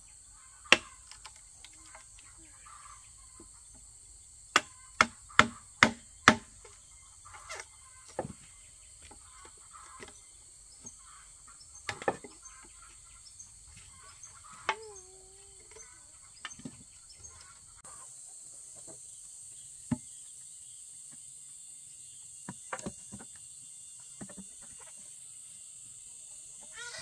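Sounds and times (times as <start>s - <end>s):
insects droning: 0.0s - 27.0s
machete knocking bamboo: 0.7s - 1.4s, 4.5s - 6.7s
bamboo post knocked: 4.6s - 6.6s.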